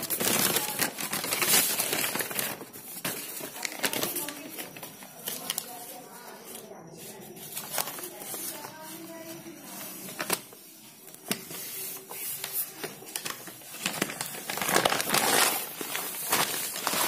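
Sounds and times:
paper bag crinkling: 0.0s - 6.7s, 7.3s - 17.0s.

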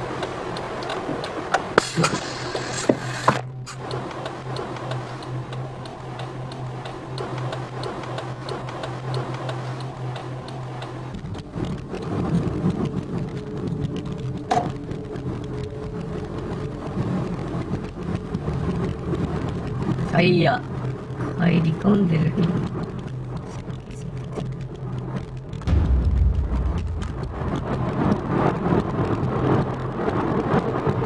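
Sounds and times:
faint regular ticking: 0.0s - 25.7s
road rumble: 0.0s - 31.0s
click: 0.2s - 12.1s.

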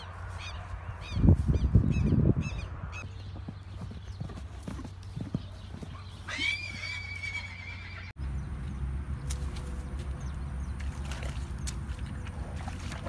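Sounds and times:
horse hooves galloping on dirt: 3.0s - 7.9s
horse whinnying: 6.3s - 8.1s.

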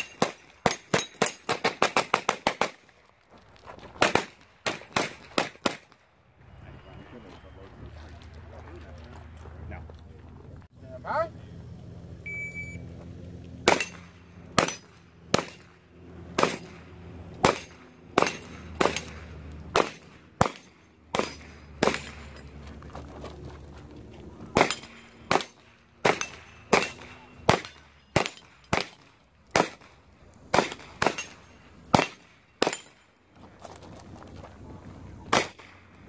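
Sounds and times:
carbine gunshots: 0.0s - 2.9s, 4.0s - 5.9s, 13.6s - 22.3s, 24.5s - 32.9s, 35.3s - 35.9s.

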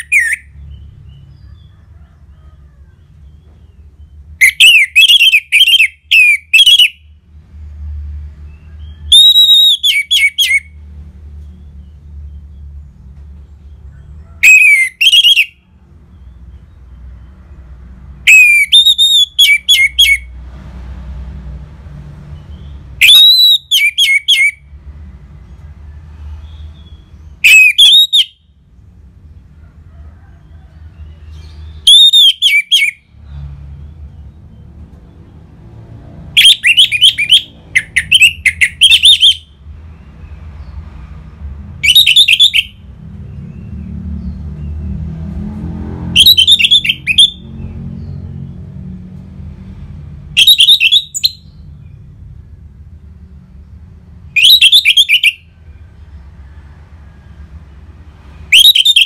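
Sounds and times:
thrush singing whistled phrases: 0.0s - 0.9s, 4.4s - 7.1s, 8.8s - 10.8s, 14.4s - 15.6s, 18.2s - 20.3s, 22.4s - 24.7s, 27.4s - 28.5s, 31.7s - 33.0s, 36.4s - 39.6s, 41.8s - 42.8s, 46.2s - 47.4s, 50.4s - 51.6s, 54.4s - 55.5s, 58.5s - 59.0s.

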